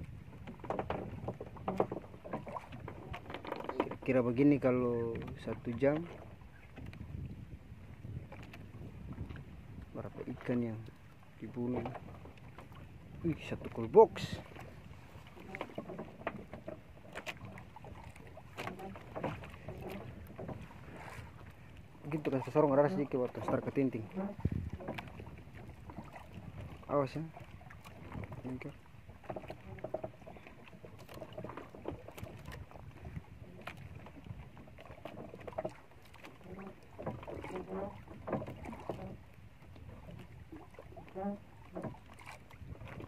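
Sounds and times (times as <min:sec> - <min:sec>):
water lapping against hull: 0:00.0 - 0:43.0
knocks on wooden hull: 0:00.4 - 0:04.2, 0:15.4 - 0:21.2, 0:29.2 - 0:39.2.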